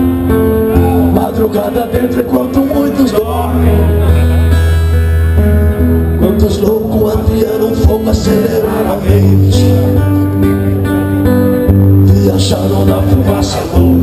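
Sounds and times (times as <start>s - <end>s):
live rock band playing: 0.0s - 14.0s
man singing: 0.5s - 4.7s, 6.2s - 10.6s, 11.9s - 14.0s.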